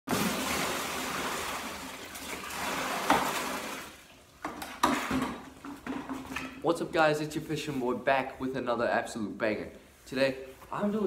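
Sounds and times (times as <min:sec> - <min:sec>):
water pouring into plastic tote: 0:00.1 - 0:04.2.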